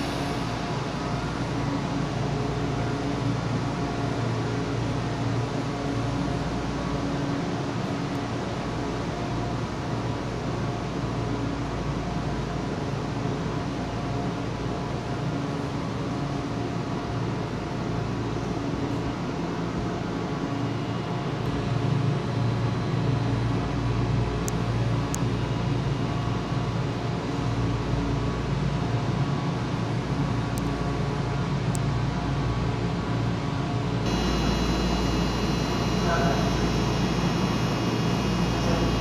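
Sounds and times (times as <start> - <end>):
train machinery hum and hiss: 0.0 - 39.0
faint steady tones: 34.1 - 39.0.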